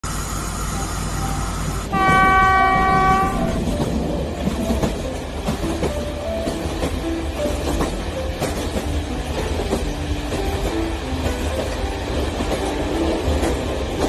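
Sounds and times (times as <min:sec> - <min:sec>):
toy train horn: 0:00.7 - 0:03.6.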